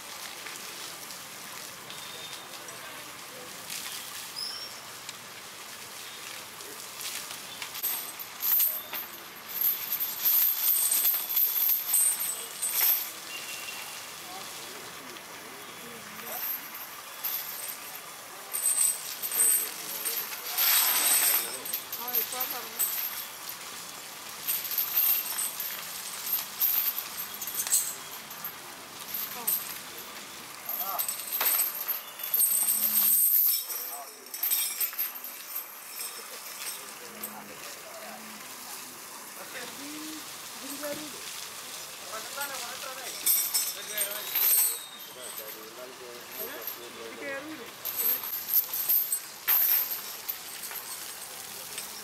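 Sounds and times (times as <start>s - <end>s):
hose water spraying and splattering: 0.0s - 52.0s
metal chain clinking: 7.5s - 14.4s, 15.8s - 38.4s, 39.4s - 41.3s, 42.1s - 52.0s.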